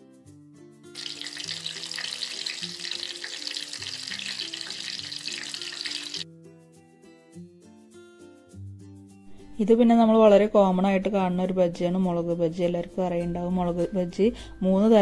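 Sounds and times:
deep-frying sizzling crackle: 0:00.9 - 0:06.2.

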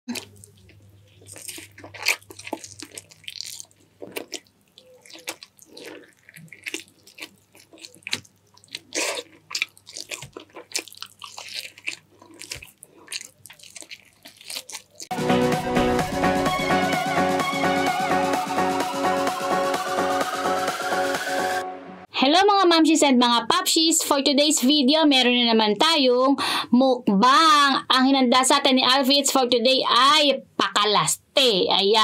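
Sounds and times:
chewing and biting: 0:00.1 - 0:15.1.

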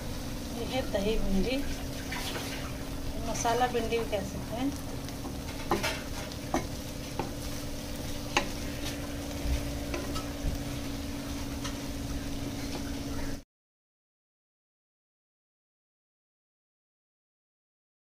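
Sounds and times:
food sizzling: 0:00.0 - 0:13.4
low hum: 0:00.0 - 0:13.4
spatula scraping metal pan: 0:05.4 - 0:07.6, 0:08.2 - 0:10.5.

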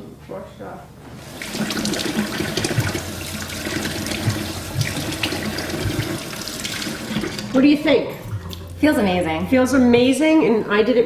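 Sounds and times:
faucet running into steel sink: 0:01.2 - 0:07.6
water splashing on face: 0:01.2 - 0:07.6.

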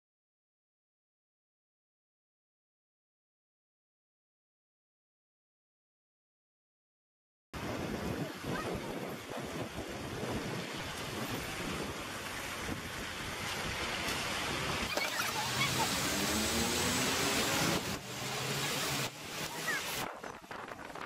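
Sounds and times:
tyres hissing on wet road: 0:07.6 - 0:20.1
car engine note climbing: 0:14.7 - 0:19.6.

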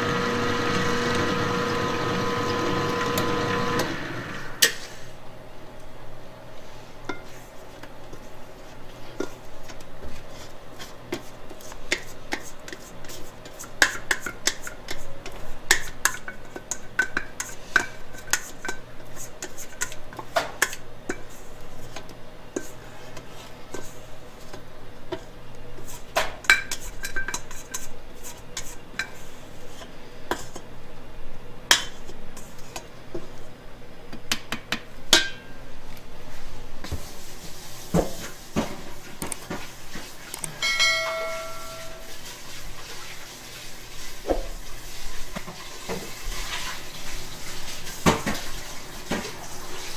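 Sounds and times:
mixer humming: 0:00.0 - 0:04.7
metal bowl clinking: 0:40.6 - 0:42.2.

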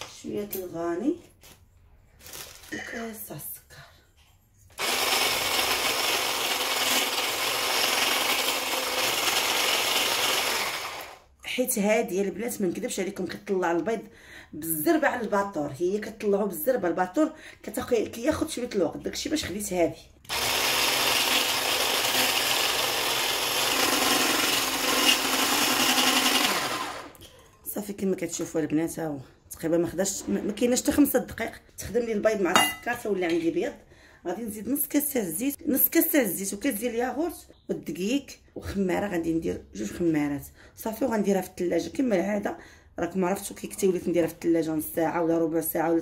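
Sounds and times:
electric whisk running: 0:04.8 - 0:11.2, 0:20.3 - 0:27.2
food chopper motor humming: 0:04.8 - 0:11.2, 0:20.3 - 0:27.2.

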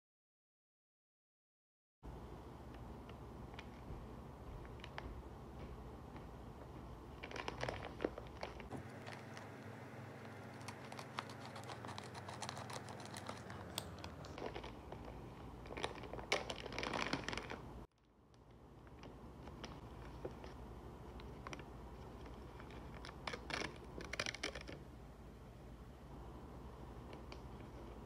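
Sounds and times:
plastic packaging crinkling: 0:07.2 - 0:17.9
scissors cutting plastic: 0:10.2 - 0:14.8.

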